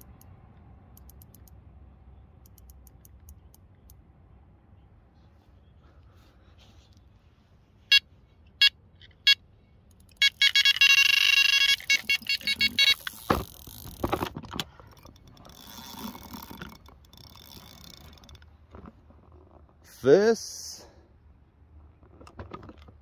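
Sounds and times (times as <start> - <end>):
bite alarm bleeps: 10.2 - 13.2
knocks and rustling of rod: 13.1 - 19.7.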